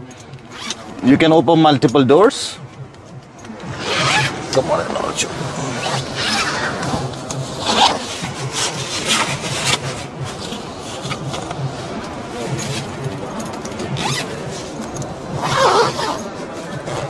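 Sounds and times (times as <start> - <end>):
zipper being pulled: 0.6 - 0.8, 3.6 - 4.6, 5.6 - 13.1, 13.9 - 17.0
canvas rustling: 3.8 - 17.0.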